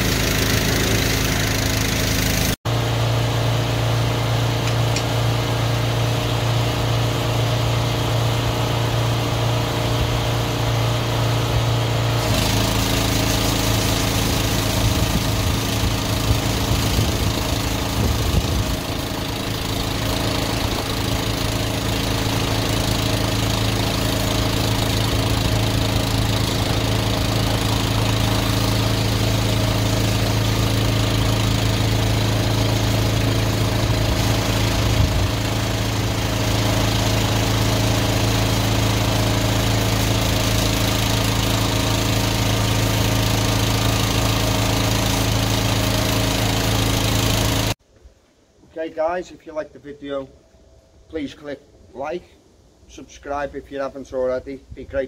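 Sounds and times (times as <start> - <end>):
high-pressure water spray hissing: 0.0 - 2.6, 12.1 - 47.8
engine running steadily: 0.0 - 47.8.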